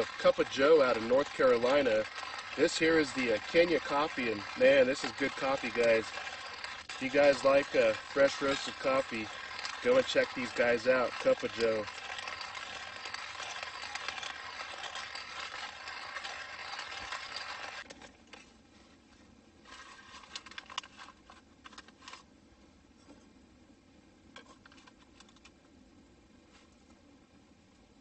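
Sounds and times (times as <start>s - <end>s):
hand coffee grinder grinding: 0.0s - 18.5s, 19.6s - 22.2s
paper filter crinkling: 19.6s - 22.2s.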